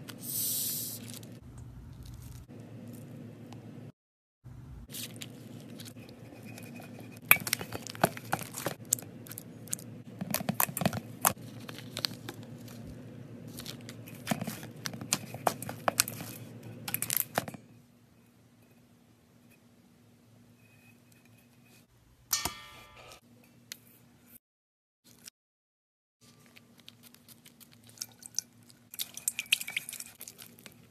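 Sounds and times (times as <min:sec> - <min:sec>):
slime crackling and crunching: 0:01.9 - 0:02.5, 0:10.6 - 0:16.4
faint hum: 0:04.5 - 0:24.3.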